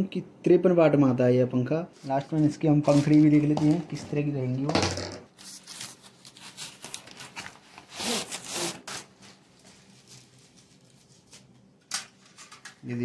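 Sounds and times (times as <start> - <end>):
cardboard scraping and rustling: 2.0 - 4.2.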